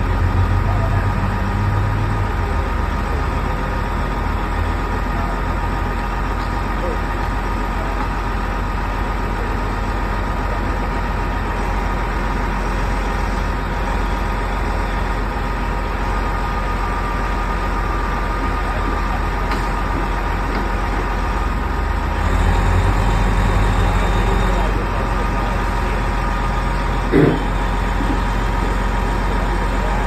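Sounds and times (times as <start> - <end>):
diesel engines running: 0.0 - 30.0
hydraulic whine: 22.1 - 29.0.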